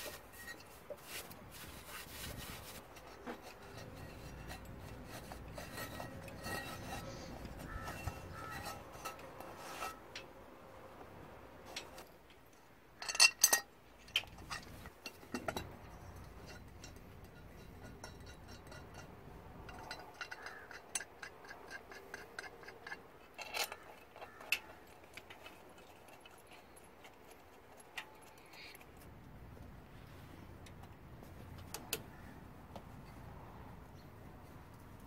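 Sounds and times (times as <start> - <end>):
metal parts clinking: 13.0 - 25.4.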